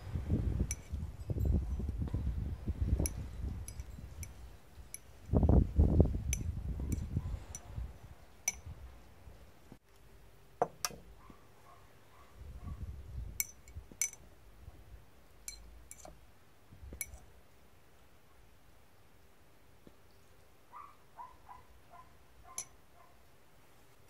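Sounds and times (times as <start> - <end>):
rod clinking against glass beaker: 0.6 - 2.0, 3.0 - 5.4, 8.5 - 8.7, 13.4 - 14.2, 15.4 - 16.2, 17.0 - 17.2.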